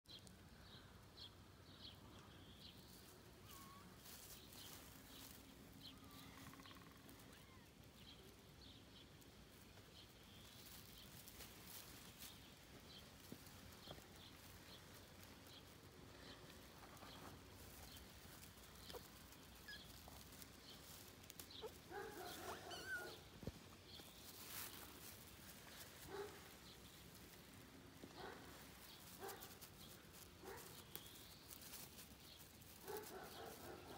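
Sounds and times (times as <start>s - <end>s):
small birds chirping: 0.1s - 33.9s
kitten mewing: 21.7s - 23.2s.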